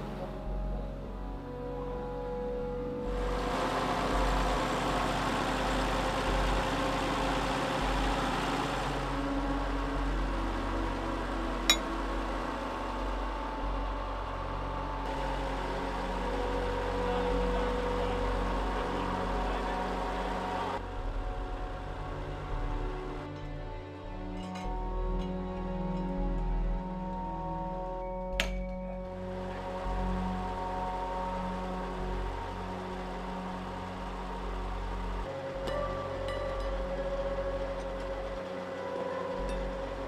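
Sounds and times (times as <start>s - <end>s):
drilling rig engine running: 3.1s - 21.2s, 29.2s - 40.0s.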